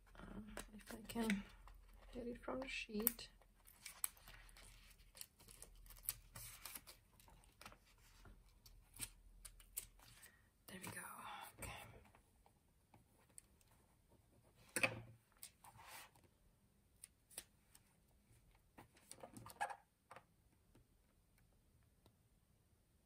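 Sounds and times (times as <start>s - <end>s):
paper rustling: 3.0s - 10.4s.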